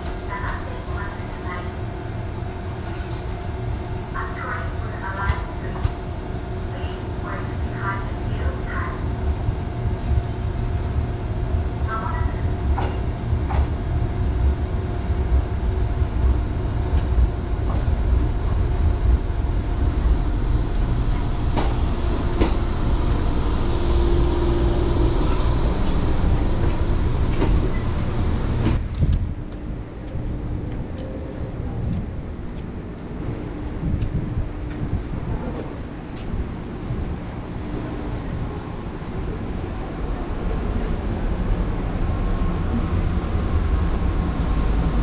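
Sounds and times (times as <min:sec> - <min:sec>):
electric train pulling in: 0:00.0 - 0:28.8.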